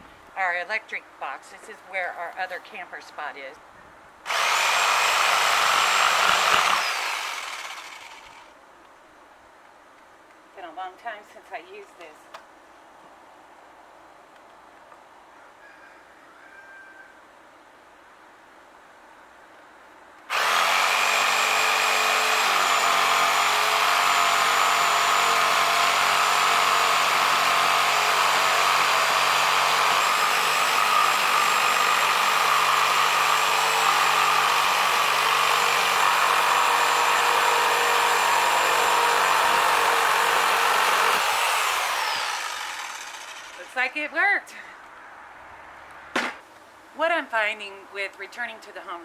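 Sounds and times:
jigsaw cutting wood: 4.3s - 8.5s, 20.3s - 43.8s.

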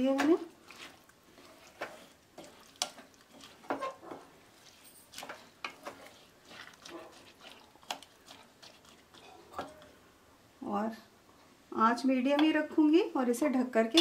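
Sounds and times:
wooden spatula scraping metal pan: 0.0s - 9.9s.

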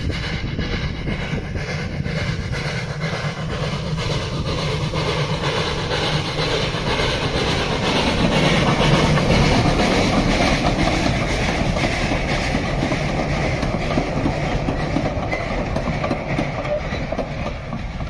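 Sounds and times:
steel wheels rolling on rails: 0.0s - 18.0s
wheels clicking over rail joints: 4.4s - 18.0s.

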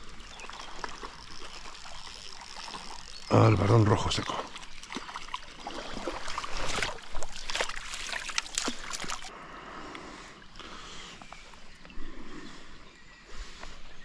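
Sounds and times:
river water sloshing and splashing: 0.0s - 9.3s.

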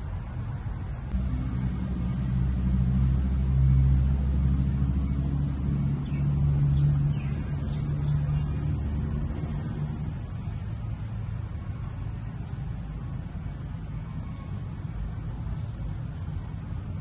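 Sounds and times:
engine rumbling: 0.0s - 17.0s.

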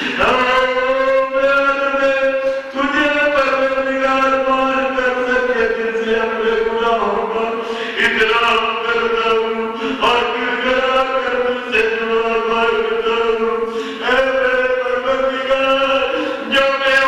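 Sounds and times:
man chanting a lament: 0.0s - 17.0s.

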